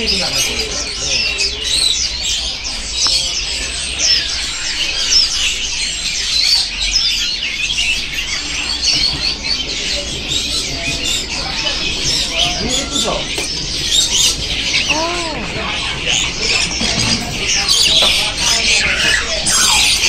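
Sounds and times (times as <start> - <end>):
songbirds chirping: 0.0 - 20.0.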